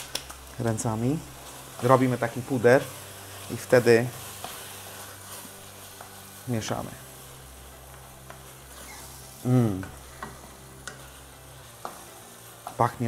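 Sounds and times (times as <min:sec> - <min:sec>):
food sizzling in a pan: 0:00.0 - 0:13.0
person humming: 0:08.9 - 0:09.9.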